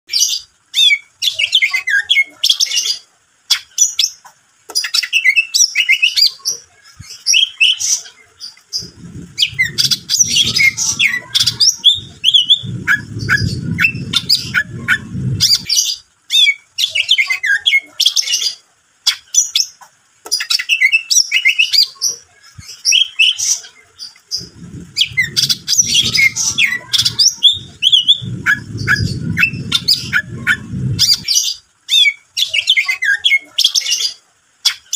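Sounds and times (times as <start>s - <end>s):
bird singing: 0.1s - 34.9s
low rumbling noise: 8.2s - 16.2s, 23.8s - 31.8s.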